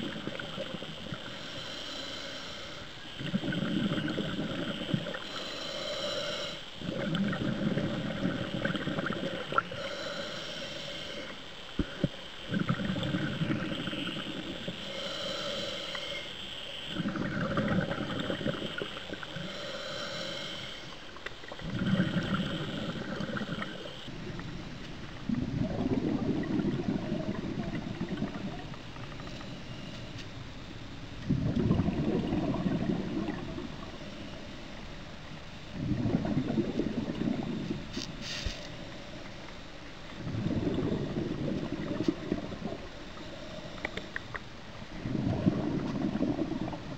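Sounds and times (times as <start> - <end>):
regulator hiss on inhale: 0.0 - 46.9
bubbles bursting on exhale: 3.2 - 5.2, 6.8 - 9.8, 11.8 - 14.8, 16.9 - 19.5, 21.4 - 24.5, 25.2 - 29.3, 31.2 - 34.0, 35.7 - 37.9, 40.2 - 42.9, 45.0 - 46.9.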